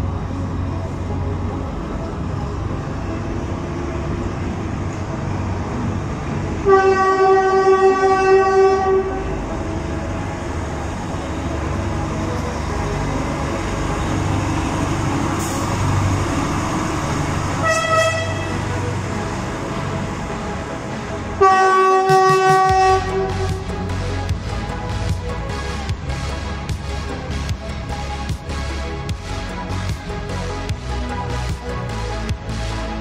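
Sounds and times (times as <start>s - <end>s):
diesel locomotive running: 0.0s - 33.0s
locomotive horn: 6.6s - 9.5s, 17.6s - 19.0s, 21.3s - 23.8s.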